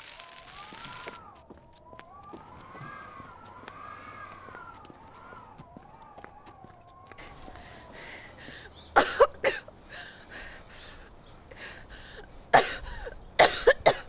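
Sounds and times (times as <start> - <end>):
person coughing and gasping: 9.0 - 9.7, 12.5 - 14.0.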